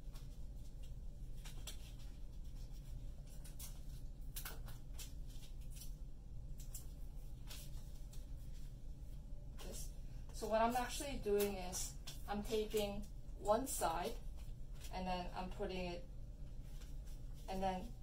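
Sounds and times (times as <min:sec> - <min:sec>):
paper rustling and clicking: 0:00.0 - 0:08.7, 0:11.4 - 0:13.1
tape pulled and torn: 0:03.2 - 0:06.0.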